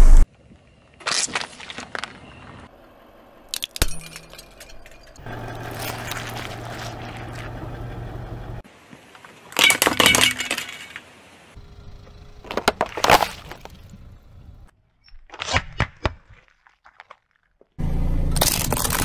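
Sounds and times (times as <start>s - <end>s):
low car hum: 2.2s - 8.7s, 11.4s - 14.7s, 17.8s - 19.0s
tyre crushing plastic: 12.5s - 13.8s, 18.3s - 19.0s.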